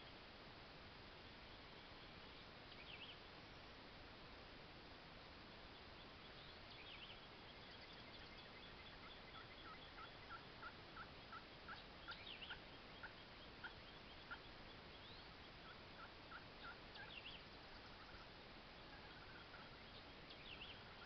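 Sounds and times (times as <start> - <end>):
turkey calling: 6.7 - 21.0.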